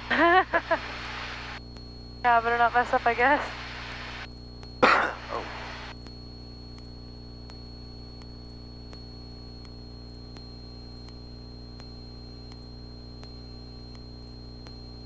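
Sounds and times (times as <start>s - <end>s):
faint static: 0.0s - 15.0s
faint ticks: 1.6s - 2.0s, 4.2s - 4.8s, 5.9s - 15.0s.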